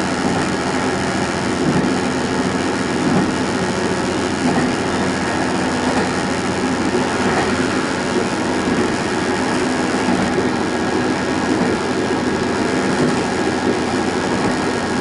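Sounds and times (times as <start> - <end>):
train engine drone: 0.0 - 15.0
wheels rumbling on rail: 0.0 - 15.0.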